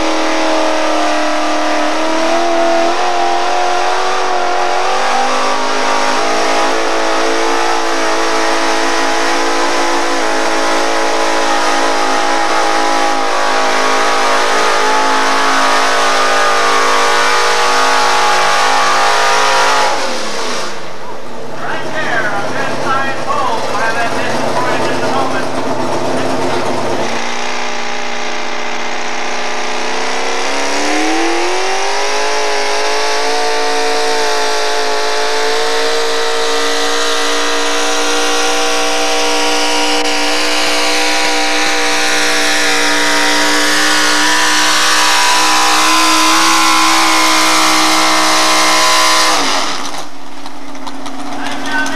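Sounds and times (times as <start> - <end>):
truck engine revving: 0.0 - 51.9.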